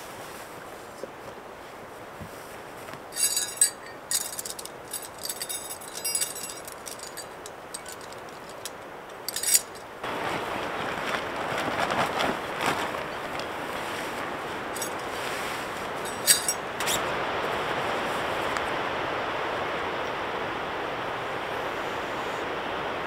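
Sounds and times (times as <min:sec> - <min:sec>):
fabric rustling: 0:00.0 - 0:18.3
metallic clinks of camping gear: 0:03.1 - 0:10.0, 0:14.6 - 0:17.0.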